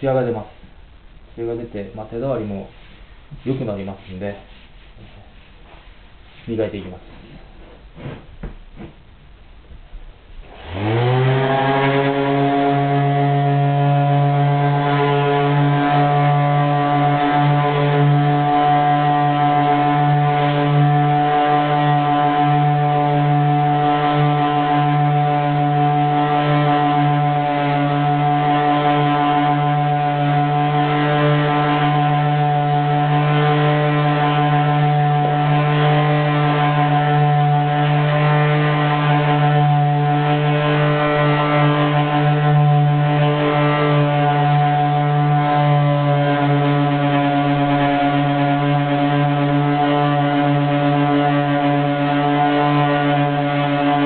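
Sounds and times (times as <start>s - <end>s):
sander humming: 10.3s - 54.0s.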